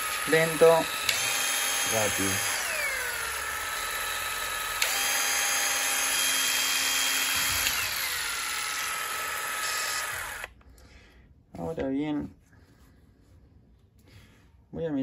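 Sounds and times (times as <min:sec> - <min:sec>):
impact driver motor whine: 0:00.0 - 0:10.6.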